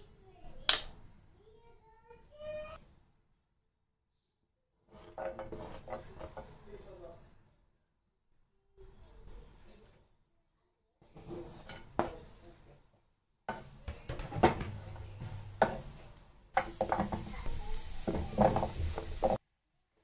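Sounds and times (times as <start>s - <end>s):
wooden spoon scraping a frying pan: 4.9s - 6.9s, 11.1s - 12.6s, 13.5s - 19.4s
squash cubes clattering into pan: 11.2s - 12.4s, 13.5s - 19.4s
steady oil hiss: 16.6s - 19.4s.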